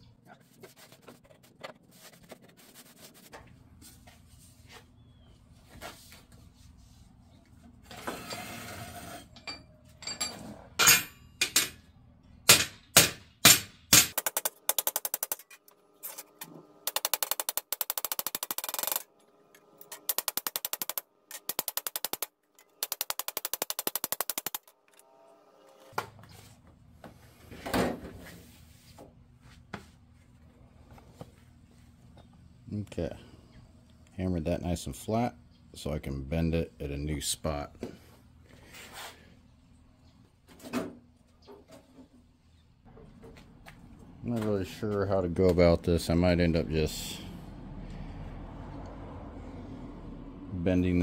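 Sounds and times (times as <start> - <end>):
hammer beating sheet metal: 12.5 - 15.4.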